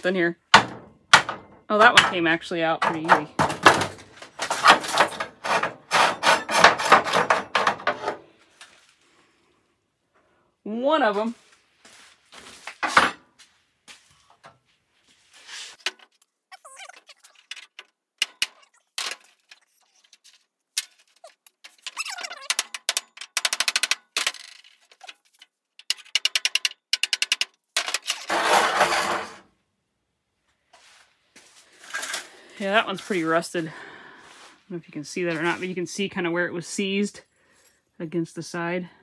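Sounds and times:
metal-on-metal taps and rattles: 0.5 - 5.8, 17.5 - 19.6, 20.8 - 28.1
metal rod scraping: 4.4 - 8.2, 24.8 - 29.4.

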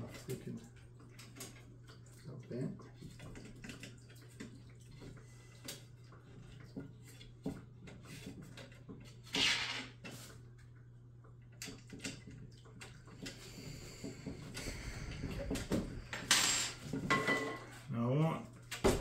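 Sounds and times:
steady low hum: 10.4 - 19.0.

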